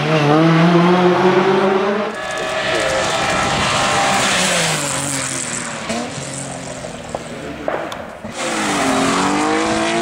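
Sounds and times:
race car approaching: 0:00.0 - 0:10.0
race car driving away: 0:00.0 - 0:10.0.

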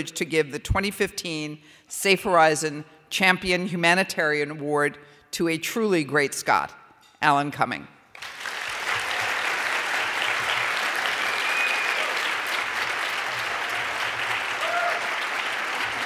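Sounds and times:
audience applauding: 0:08.2 - 0:16.0.

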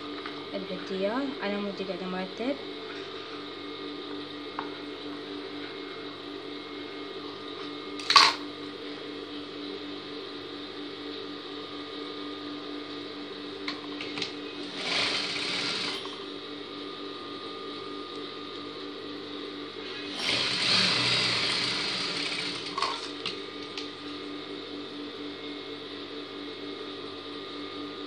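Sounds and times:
sewing machine motor humming: 0:14.0 - 0:16.2, 0:19.8 - 0:23.3.

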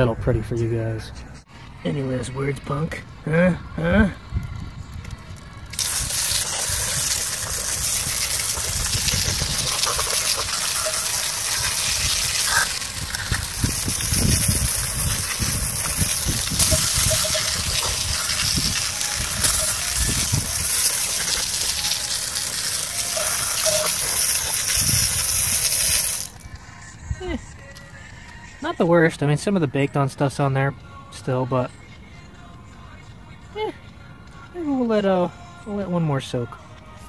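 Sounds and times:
hose water spraying on metal: 0:05.7 - 0:26.4.

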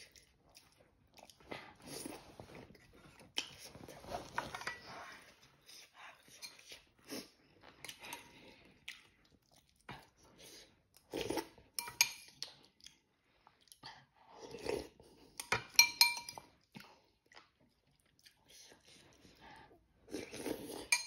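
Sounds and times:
person slurping noodles: 0:10.4 - 0:11.6, 0:14.4 - 0:15.0, 0:20.1 - 0:20.9
spoon clinking on ceramic bowl: 0:15.4 - 0:16.4.

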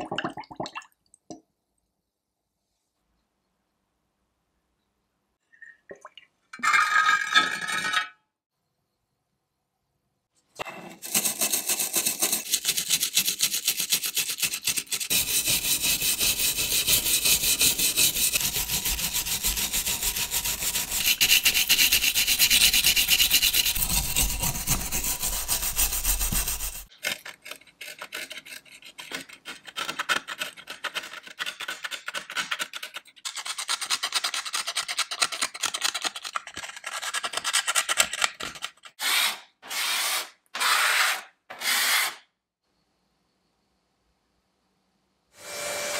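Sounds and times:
stiff brush scrubbing metal: 0:11.0 - 0:29.8.

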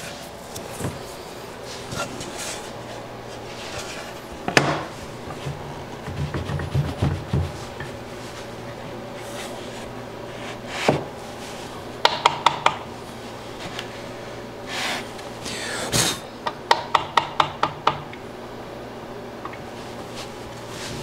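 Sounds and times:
steady low hum: 0:00.0 - 0:21.0
plywood scraping on table saw: 0:09.2 - 0:11.6.

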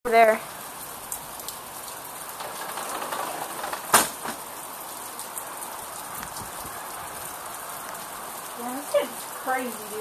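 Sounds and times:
heavy rain hissing: 0:00.1 - 0:10.0.

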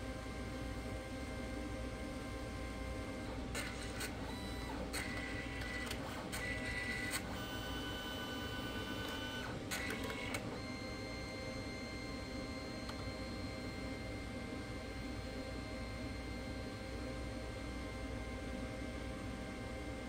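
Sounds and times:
printer motor whirring and clicking: 0:02.5 - 0:15.2.

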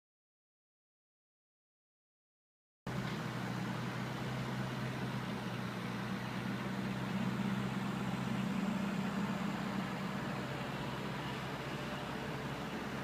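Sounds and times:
low motor hum: 0:02.9 - 0:13.0.

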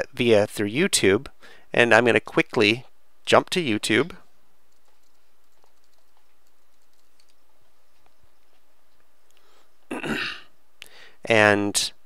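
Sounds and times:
low steady hum: 0:00.0 - 0:12.0
keyboard typing: 0:04.7 - 0:07.4.

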